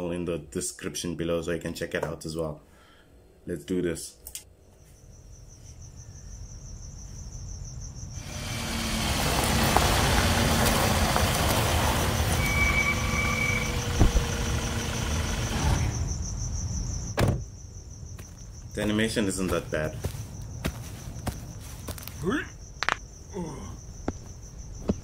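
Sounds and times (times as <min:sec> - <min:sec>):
crickets chirping: 0:04.4 - 0:25.0
car engine and tyres: 0:08.2 - 0:18.6, 0:19.4 - 0:22.2
short high squeal: 0:12.3 - 0:14.3
thump: 0:14.0 - 0:14.4, 0:17.1 - 0:17.5.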